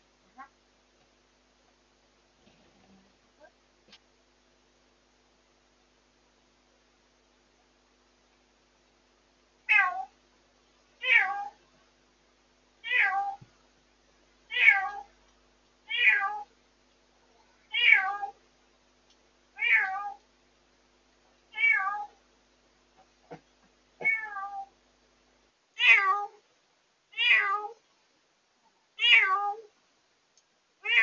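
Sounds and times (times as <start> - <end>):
cat meowing: 9.7 - 10.1, 11.0 - 11.6, 12.8 - 13.4, 14.5 - 15.1, 15.9 - 16.5, 17.7 - 18.4, 19.6 - 20.2, 21.5 - 22.2, 24.0 - 24.7, 25.8 - 26.4, 27.2 - 27.8, 29.0 - 29.7.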